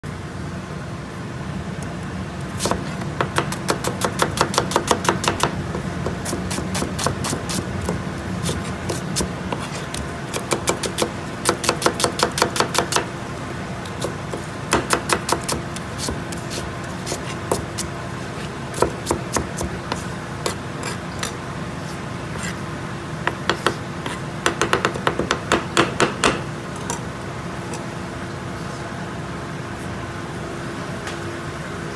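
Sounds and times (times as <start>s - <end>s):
steady low hum: 0.0s - 31.9s
knife chopping on wooden board: 2.6s - 13.1s, 13.9s - 17.9s, 18.7s - 21.4s, 23.3s - 26.4s.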